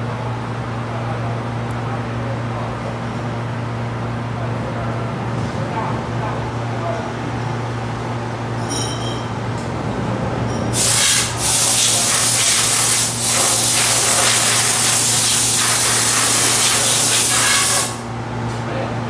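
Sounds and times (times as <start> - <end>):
low machine hum: 0.0 - 11.5
loud even hiss: 10.8 - 18.1.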